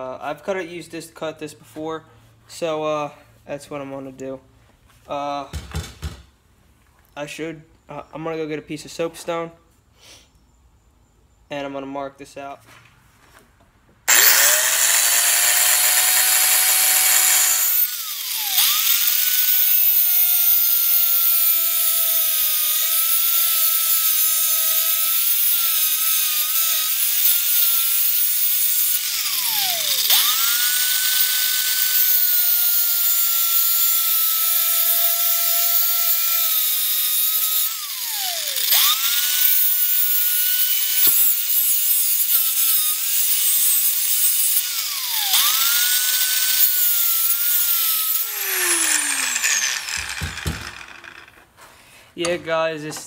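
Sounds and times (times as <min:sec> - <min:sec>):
angle grinder cutting steel tube: 0:14.1 - 0:51.5.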